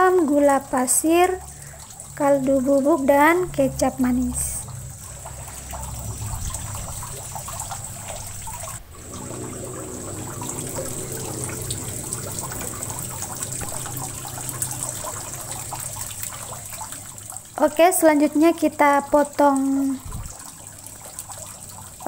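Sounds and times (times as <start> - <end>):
low hum: 0.0 - 17.6
steady rushing noise: 3.4 - 16.3.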